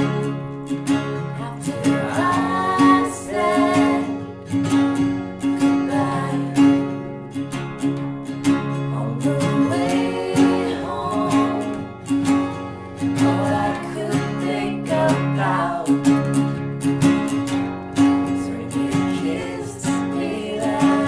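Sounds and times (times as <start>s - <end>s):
acoustic guitars strumming: 0.0s - 21.0s
man and woman singing: 1.2s - 7.0s, 8.7s - 16.4s, 18.0s - 21.0s.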